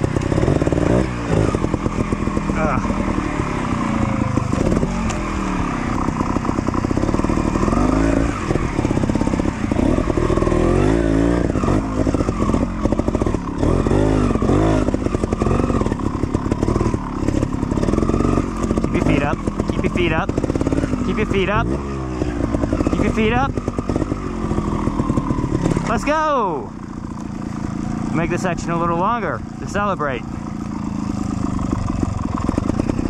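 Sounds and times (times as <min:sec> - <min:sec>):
motorcycle engine revving: 0:00.0 - 0:33.0.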